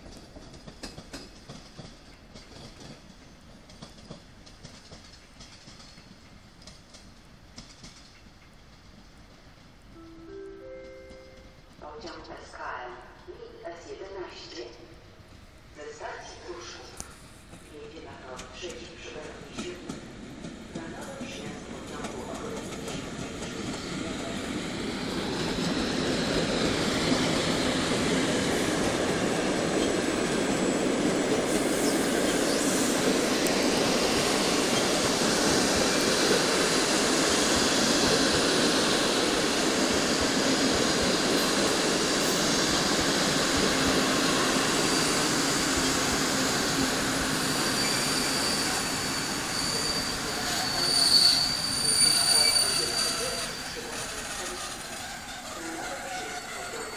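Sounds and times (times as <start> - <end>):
train wheels rumbling on rails: 0.0 - 9.9, 16.6 - 56.9
train wheels squealing: 29.8 - 39.0, 41.2 - 56.9.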